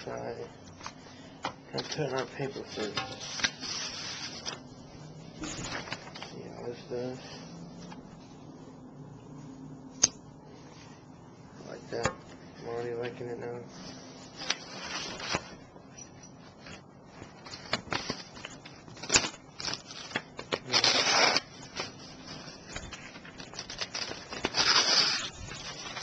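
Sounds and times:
paper rustling: 0.0 - 8.4, 12.7 - 15.8, 16.4 - 26.0
knife cutting paper: 23.4 - 26.0.

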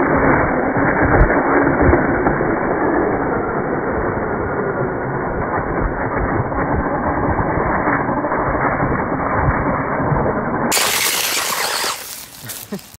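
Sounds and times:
rc car tyres spinning in dirt: 0.0 - 13.0
bright hiss: 10.7 - 13.0.

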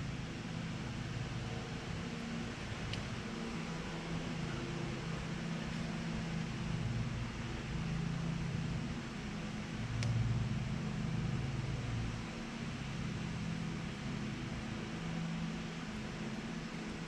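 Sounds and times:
electric fan humming: 0.0 - 17.0
faint tick: 10.0 - 10.2.

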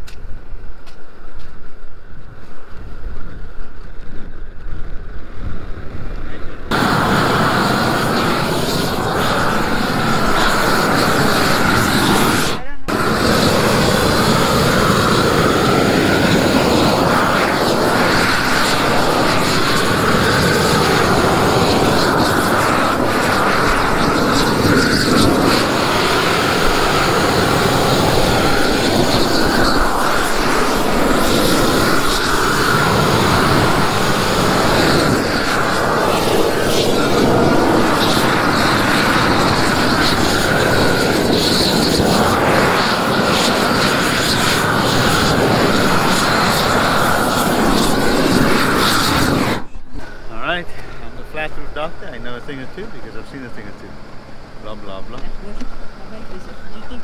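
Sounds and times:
roofing torch flame rushing: 0.0 - 56.8.

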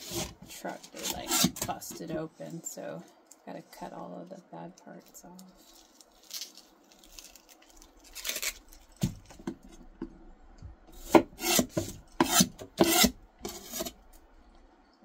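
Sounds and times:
knife scraping onion skin: 0.0 - 1.7, 5.6 - 8.6, 10.9 - 14.0.

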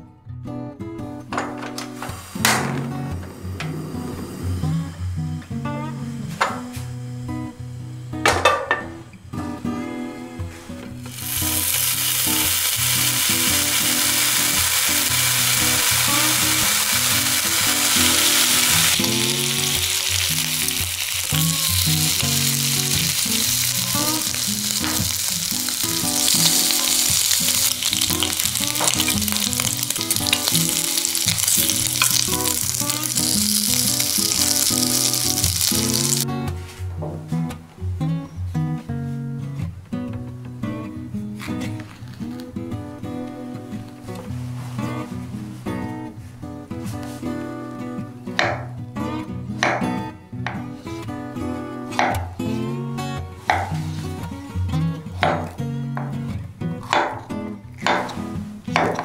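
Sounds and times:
guitar music: 0.0 - 59.0
bacon sizzling in frying pan: 11.1 - 36.2.

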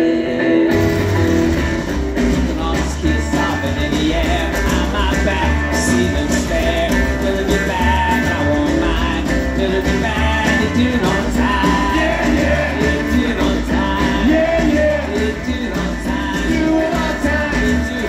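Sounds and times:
live rock band playing: 0.0 - 18.0
person singing: 0.0 - 18.0.

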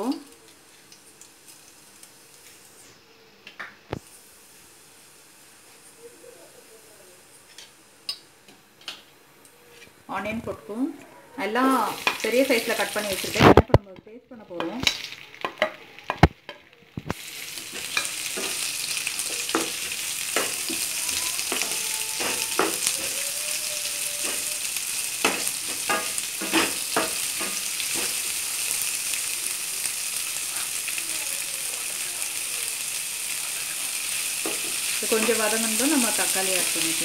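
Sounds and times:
onions sizzling in hot oil: 0.0 - 10.8, 11.4 - 37.0
spatula scraping metal pan: 25.2 - 28.2.

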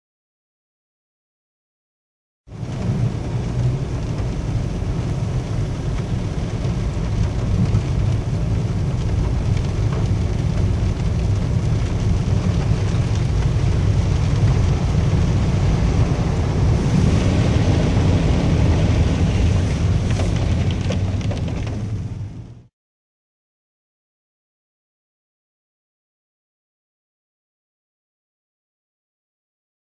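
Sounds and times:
car driving through water: 2.5 - 22.7
car rumble: 2.5 - 22.7
heavy rain on car roof: 2.5 - 22.7.

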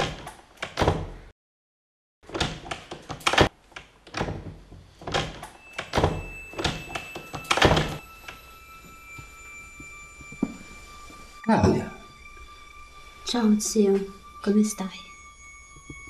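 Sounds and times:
thin steady high tones: 5.5 - 16.0.

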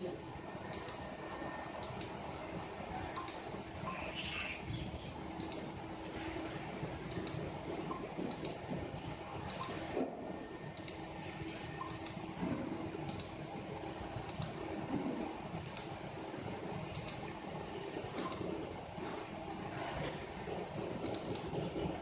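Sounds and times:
steady background hum: 0.0 - 22.0.

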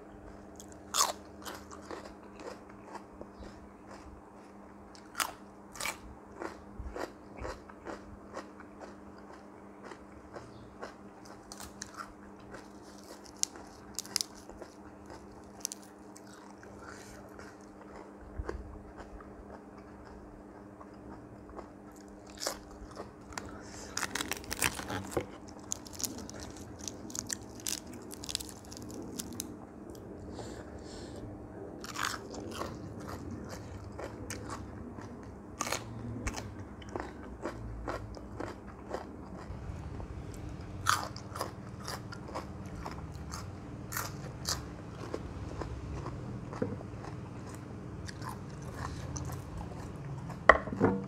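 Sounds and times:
person chewing crisp lettuce: 0.0 - 50.5.

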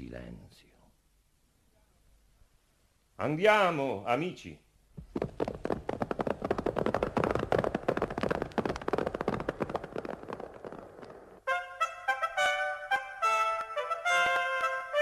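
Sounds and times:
footsteps walking off: 5.0 - 11.4
trumpet fanfare: 11.5 - 15.0.

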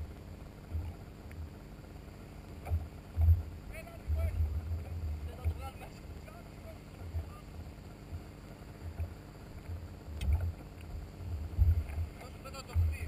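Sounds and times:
jet ski engine idling: 0.0 - 13.0
wind buffeting microphone: 10.2 - 13.0.

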